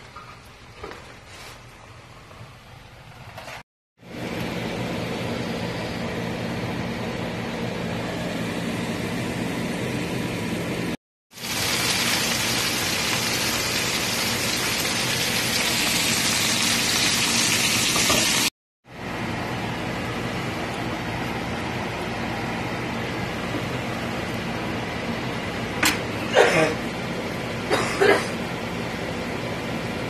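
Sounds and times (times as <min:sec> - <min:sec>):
mushrooms sizzling in frying pan: 0:11.3 - 0:18.5.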